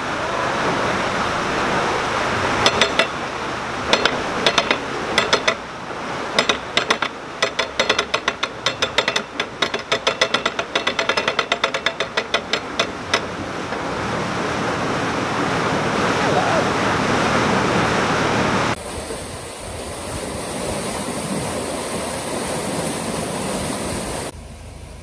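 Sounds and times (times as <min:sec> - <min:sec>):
ratchet pawl clicking: 0:02.7 - 0:03.2, 0:03.9 - 0:05.6, 0:06.4 - 0:13.4.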